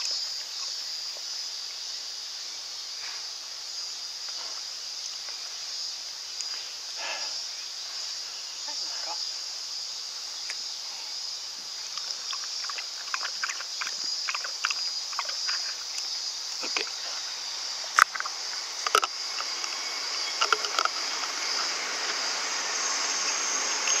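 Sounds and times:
high drone of insects: 0:00.0 - 0:24.0
dog lapping water: 0:11.8 - 0:17.2, 0:18.0 - 0:24.0.

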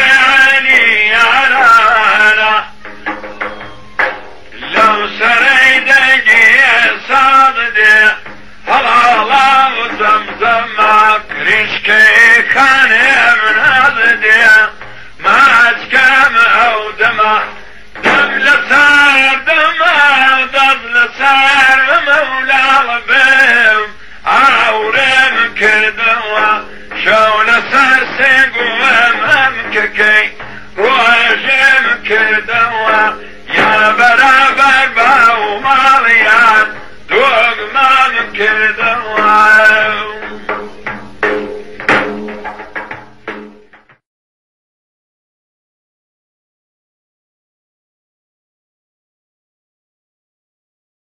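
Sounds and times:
man singing folk song: 0:00.0 - 0:03.2, 0:04.0 - 0:40.9.

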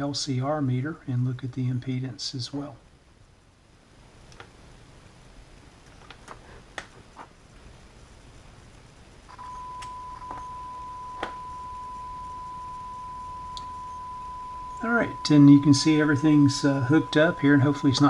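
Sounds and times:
sine wave test tone: 0:09.3 - 0:18.0.

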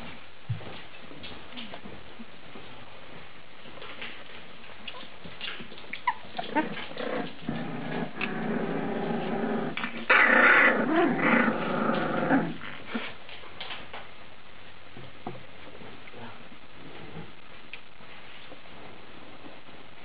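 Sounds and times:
puppies growling: 0:03.9 - 0:13.3.

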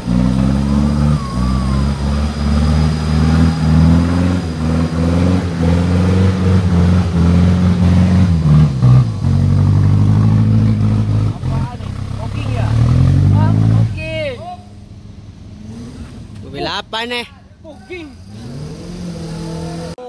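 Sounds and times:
engine revving under load: 0:00.0 - 0:20.0.

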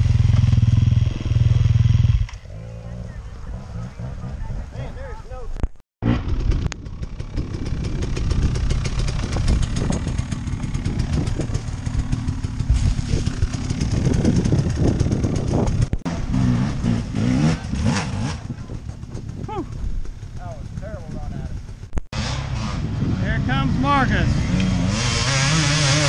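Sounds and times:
dirt bike engine running hard: 0:00.0 - 0:04.7, 0:06.0 - 0:26.0.

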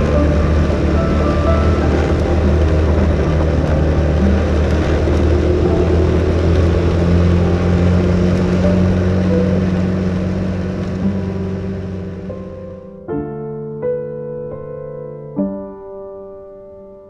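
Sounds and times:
small motorcycle engine running: 0:00.0 - 0:12.3
wind noise: 0:00.0 - 0:13.1
slow piano music: 0:00.0 - 0:17.0.

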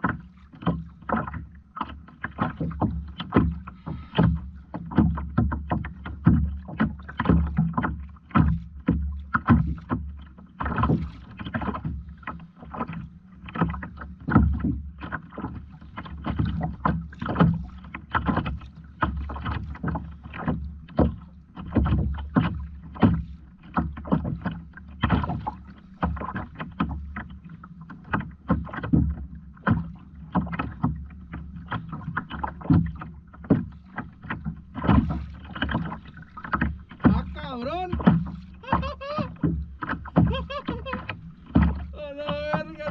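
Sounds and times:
water splashing against kayak hull: 0:00.0 - 0:42.9
low steady hum: 0:29.0 - 0:42.9.

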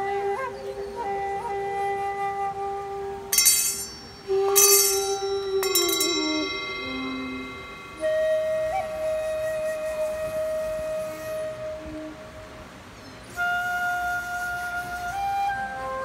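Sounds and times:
wooden flute melody: 0:00.0 - 0:16.0
held drone note: 0:03.3 - 0:10.4
singing bowls ringing: 0:03.3 - 0:10.4.

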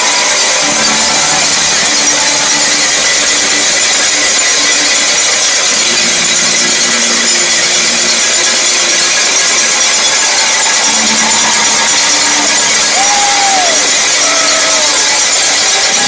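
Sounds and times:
crowd ringing cowbells: 0:00.0 - 0:16.0
faint shouts or whistles: 0:10.5 - 0:16.0.

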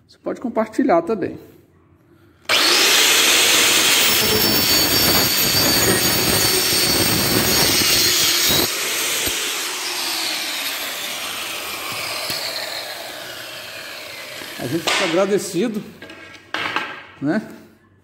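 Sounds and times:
circular saw cutting wood: 0:02.5 - 0:15.7.

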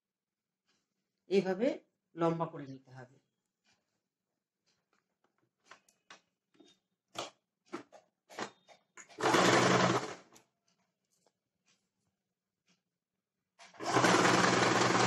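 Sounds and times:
sewing machine stitching: 0:09.0 - 0:10.4, 0:13.6 - 0:15.0.

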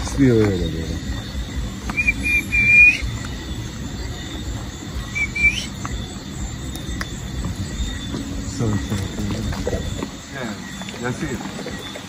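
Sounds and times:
low steady background noise: 0:00.0 - 0:12.0
high thin whistled call: 0:01.9 - 0:03.3, 0:05.0 - 0:05.9.

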